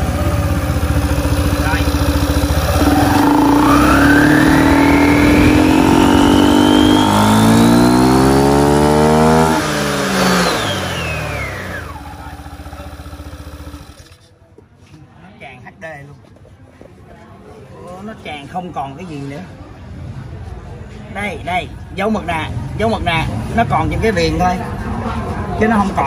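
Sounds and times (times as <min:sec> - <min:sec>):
scooter engine revving with whine: 0:00.0 - 0:14.2.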